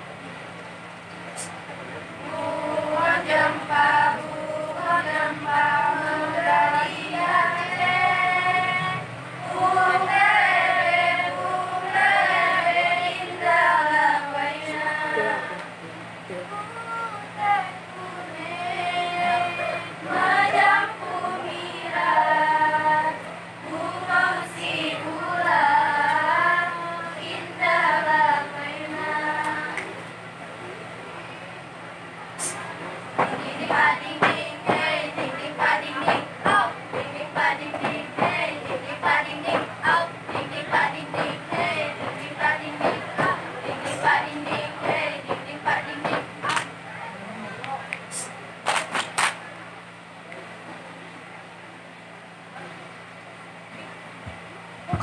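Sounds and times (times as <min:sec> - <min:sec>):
women chanting in unison: 0:02.2 - 0:15.6, 0:16.8 - 0:29.8, 0:33.2 - 0:46.6.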